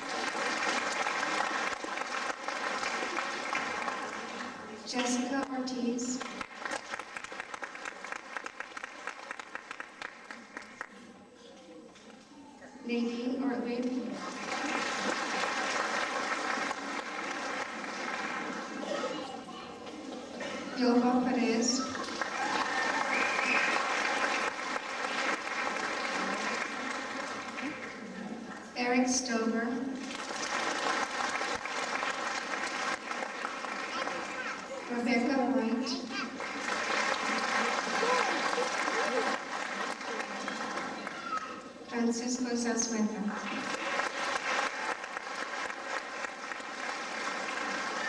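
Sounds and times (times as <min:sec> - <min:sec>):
audience applauding: 0:00.0 - 0:04.8, 0:06.2 - 0:11.0, 0:14.1 - 0:19.3, 0:21.8 - 0:28.1, 0:30.0 - 0:35.0, 0:35.9 - 0:41.7, 0:43.4 - 0:48.0.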